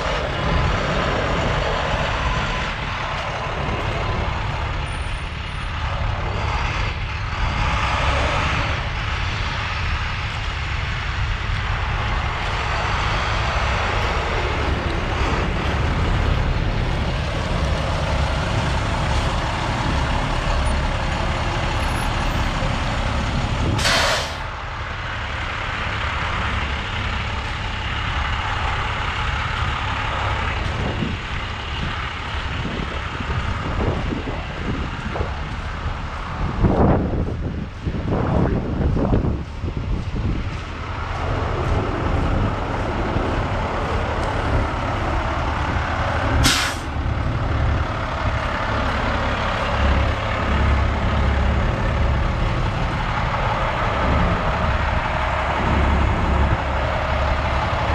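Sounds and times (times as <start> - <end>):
diesel engine idling: 0.0 - 57.9
air release hiss: 23.8 - 24.5, 46.4 - 46.9.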